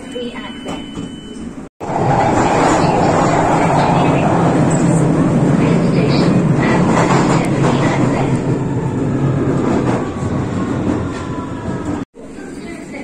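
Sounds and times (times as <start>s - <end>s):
train wheel and track noise: 0.0s - 13.0s.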